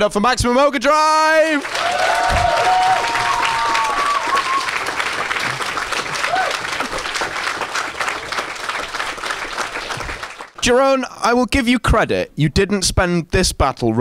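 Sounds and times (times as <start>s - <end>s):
audience cheering: 1.4s - 10.6s
audience applauding: 1.4s - 10.7s.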